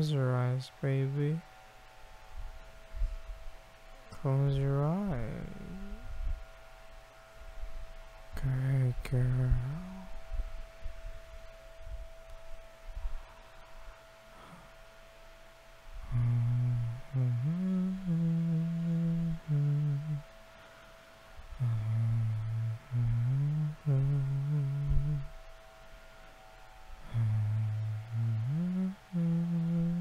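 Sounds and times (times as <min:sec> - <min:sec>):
man humming: 0:00.0 - 0:01.4, 0:04.1 - 0:06.3, 0:08.3 - 0:10.4, 0:14.3 - 0:14.9, 0:16.0 - 0:20.3, 0:21.6 - 0:25.4, 0:27.0 - 0:30.0
faint steady high tone: 0:00.0 - 0:30.0.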